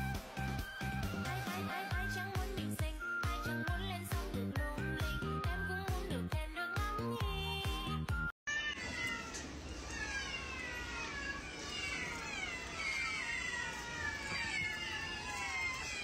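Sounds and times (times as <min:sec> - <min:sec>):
background music: 0:00.0 - 0:08.3
cats and kittens meowing: 0:08.5 - 0:16.0.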